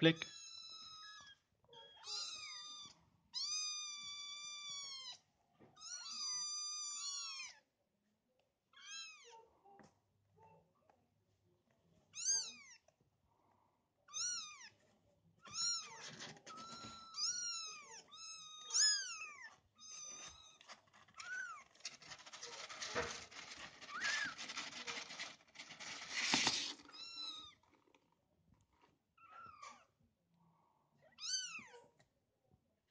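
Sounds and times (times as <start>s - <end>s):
claws scratching cardboard: 20.0s - 26.9s.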